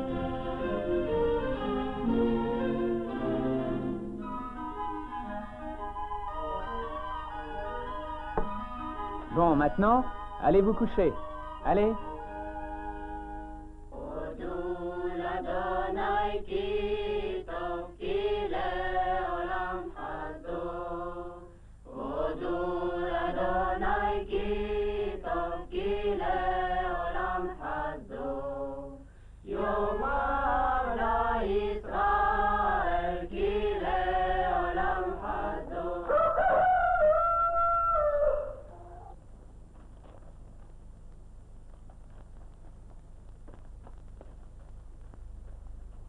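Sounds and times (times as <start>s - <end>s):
choir singing a chant: 0.0s - 4.1s, 13.9s - 36.4s.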